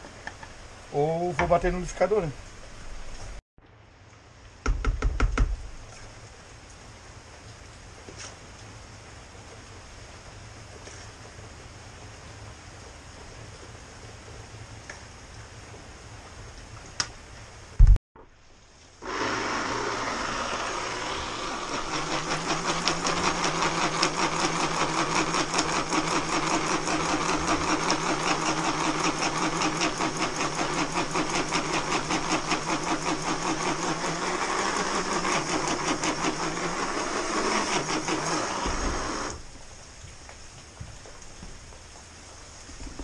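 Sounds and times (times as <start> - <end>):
blender grinding seeds: 19.0 - 39.4
blender jar shaken: 21.5 - 38.5.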